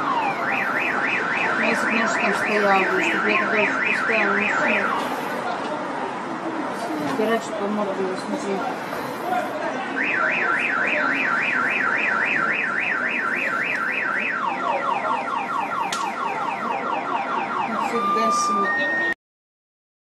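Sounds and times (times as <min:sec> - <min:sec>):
car alarm siren: 0:00.0 - 0:05.2, 0:09.8 - 0:19.2.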